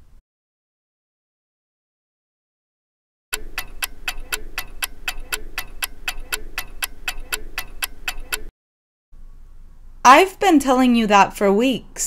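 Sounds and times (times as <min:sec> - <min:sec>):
clock ticking: 0:03.4 - 0:08.5.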